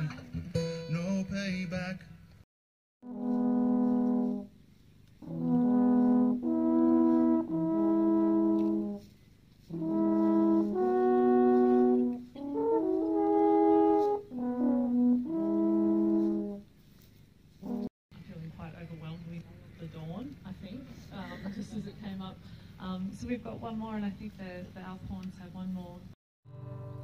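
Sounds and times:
alphorns playing slow melody: 0:03.0 - 0:04.6, 0:05.2 - 0:09.1, 0:09.7 - 0:16.7, 0:26.5 - 0:27.0.

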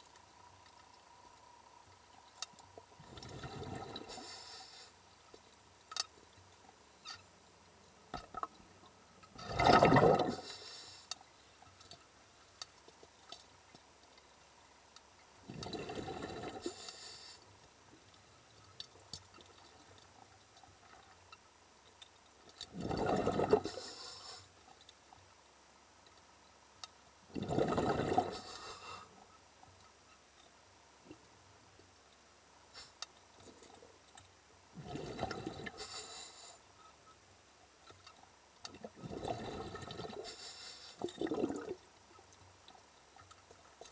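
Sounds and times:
faint ticks: 0:00.0 - 0:09.4, 0:10.2 - 0:27.3, 0:28.2 - 0:43.9
underwater bubbling and rushing: 0:02.8 - 0:04.4, 0:09.3 - 0:10.9, 0:15.4 - 0:17.0, 0:22.6 - 0:24.0, 0:27.3 - 0:28.6, 0:34.8 - 0:35.9, 0:38.7 - 0:42.0.

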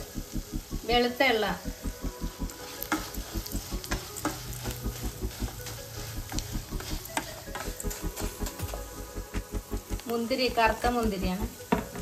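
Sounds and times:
nuts sizzling in hot fat: 0:00.0 - 0:12.0
wooden spatula scraping pan: 0:02.5 - 0:08.9.

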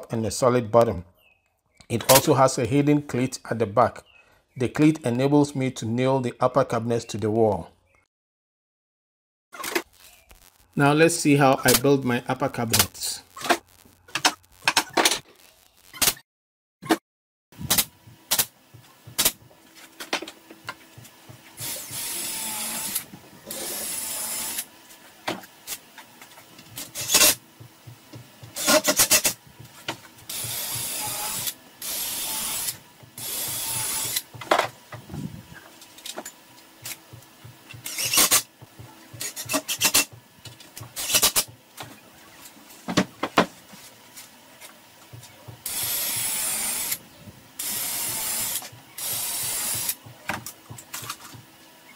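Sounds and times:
cordless drill whirring: 0:21.6 - 0:24.7, 0:26.8 - 0:27.4, 0:28.4 - 0:29.4, 0:30.2 - 0:34.4, 0:37.8 - 0:38.5, 0:45.6 - 0:47.0, 0:47.6 - 0:50.0.

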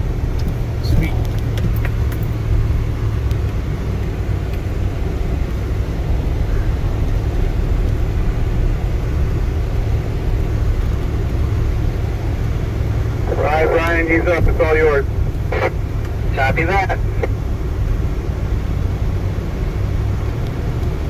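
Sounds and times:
vehicle engine pulling at low speed: 0:00.0 - 0:21.0.

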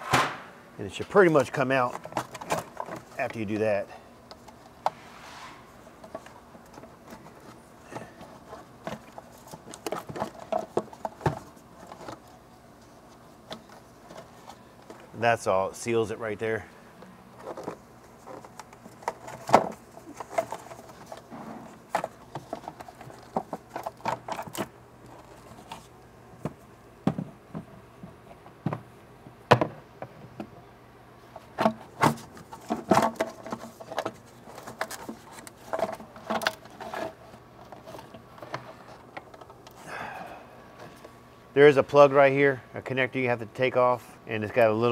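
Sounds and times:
plastic parts clicking and knocking: 0:01.9 - 0:03.2, 0:06.0 - 0:12.3, 0:17.4 - 0:25.8, 0:31.6 - 0:39.8.

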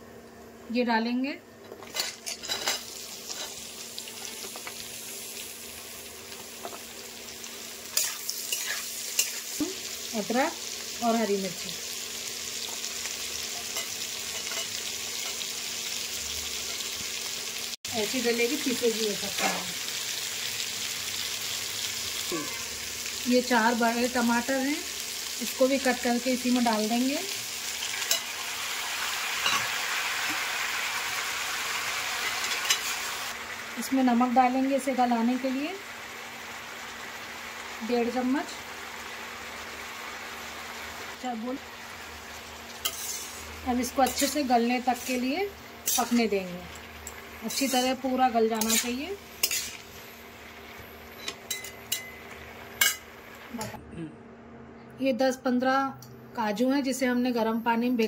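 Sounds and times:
onions sizzling in oil: 0:01.8 - 0:53.7
spatula scraping a pan: 0:42.8 - 0:44.3, 0:48.6 - 0:49.9.

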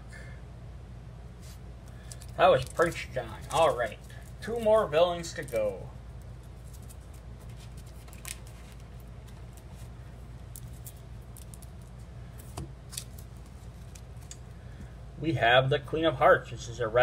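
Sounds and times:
steady low hum: 0:00.0 - 0:17.0
cards clicking and rustling: 0:01.9 - 0:04.7, 0:05.3 - 0:14.9.

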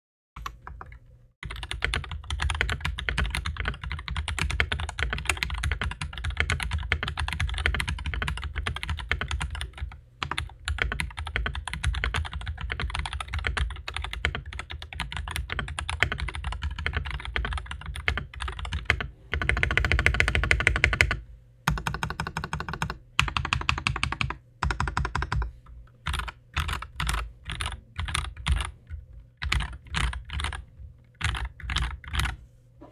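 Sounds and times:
mechanical keyboard typing: 0:00.4 - 0:32.4.

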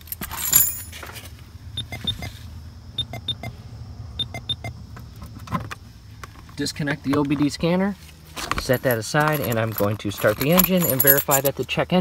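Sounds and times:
vehicle warning chime beeps: 0:01.8 - 0:02.3, 0:03.0 - 0:03.6, 0:04.2 - 0:04.8.

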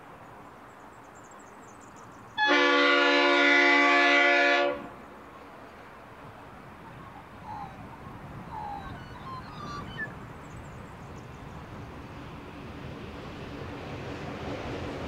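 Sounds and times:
distant diesel locomotive rumble: 0:00.0 - 0:15.0
bird chirps: 0:08.5 - 0:11.6.

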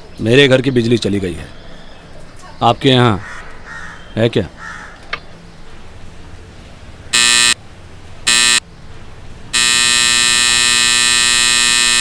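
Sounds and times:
electric buzzer: 0:07.1 - 0:07.6, 0:08.3 - 0:08.6, 0:09.5 - 0:12.0.

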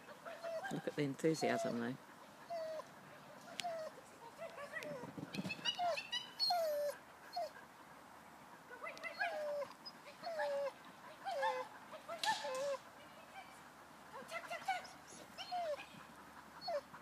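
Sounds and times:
dog whining yelps: 0:00.2 - 0:00.8, 0:03.5 - 0:07.5, 0:09.0 - 0:10.7, 0:14.7 - 0:15.9, 0:16.6 - 0:16.9.

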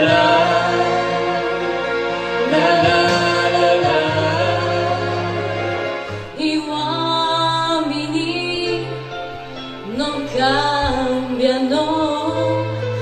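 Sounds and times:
instrumental accompaniment with bass: 0:00.0 - 0:13.0
woman singing into a microphone: 0:06.4 - 0:09.2, 0:09.8 - 0:13.0.

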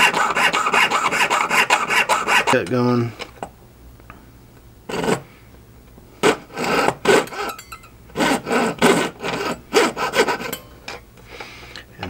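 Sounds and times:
jeweler's saw rasping through metal: 0:00.0 - 0:02.8, 0:04.9 - 0:05.2, 0:06.2 - 0:10.7.

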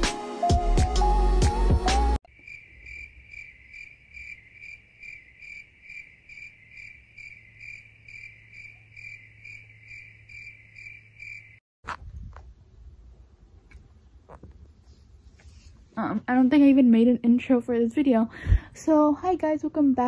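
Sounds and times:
cricket chirping: 0:02.3 - 0:11.6.

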